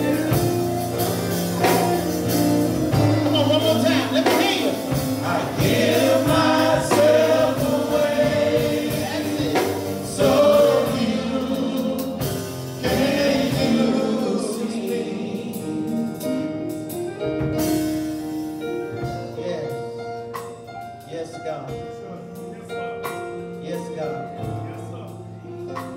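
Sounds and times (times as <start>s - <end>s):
gospel choir singing: 0.0s - 19.6s.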